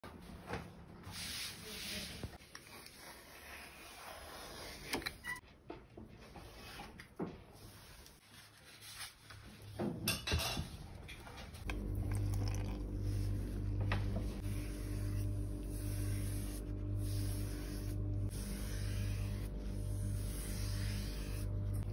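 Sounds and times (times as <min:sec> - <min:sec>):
steady low hum: 0:11.6 - 0:21.9.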